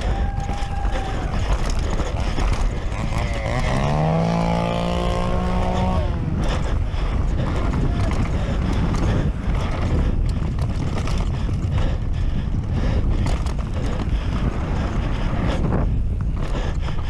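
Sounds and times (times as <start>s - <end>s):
bike clicking and rattling: 0.0s - 17.0s
bike tyres rumbling on dirt: 0.0s - 17.0s
wind rushing over microphone: 0.0s - 17.0s.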